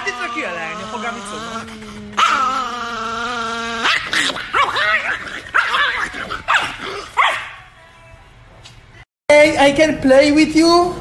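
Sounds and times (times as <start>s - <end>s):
small dog yapping: 0.0s - 7.6s.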